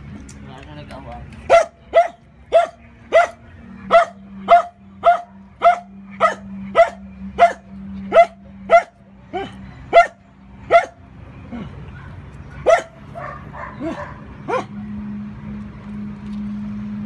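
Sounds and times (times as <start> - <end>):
puppy barking: 1.5 - 11.0, 11.9 - 14.7.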